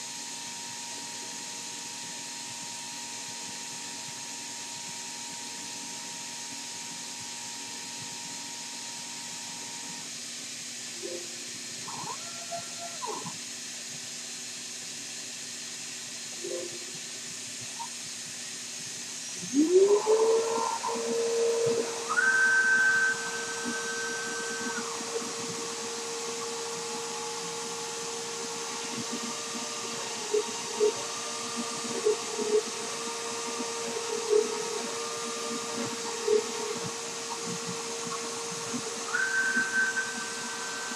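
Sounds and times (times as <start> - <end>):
spindle whine: 19.1 - 40.9
stepper motors whirring: 19.2 - 40.9
machine cutting bursts and ticks: 19.4 - 40.9.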